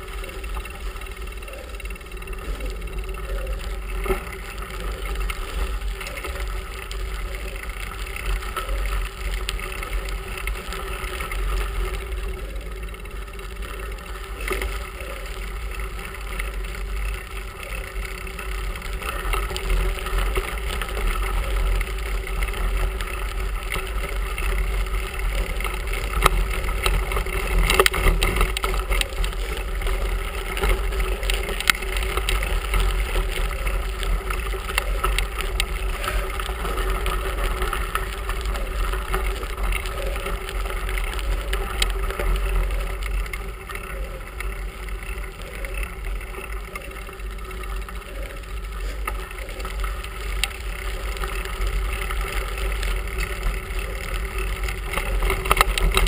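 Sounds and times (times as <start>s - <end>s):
wind and road rumble: 0.0s - 56.0s.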